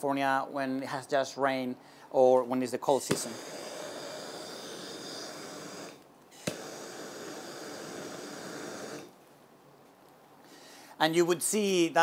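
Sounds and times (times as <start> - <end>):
gas torch hissing: 2.9 - 9.2
torch ignition click: 3.1 - 9.1.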